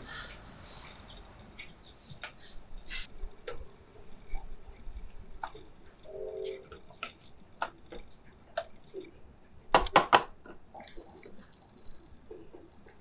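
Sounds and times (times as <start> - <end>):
sharp knocks: 9.8 - 10.4.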